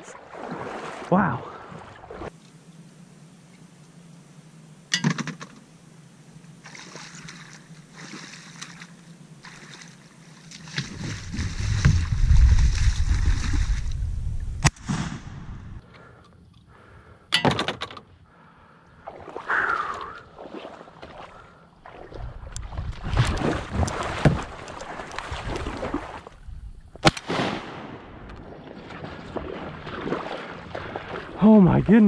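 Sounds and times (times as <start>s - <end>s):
shallow water splashing: 0.0s - 2.4s, 6.6s - 14.6s, 19.0s - 26.4s, 28.3s - 32.0s
knocks against boat: 24.0s - 24.5s.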